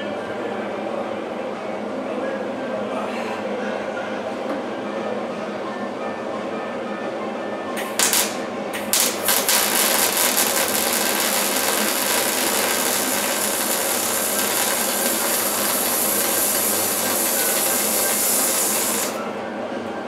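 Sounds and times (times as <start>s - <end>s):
welder arc crackling: 7.8s - 19.2s.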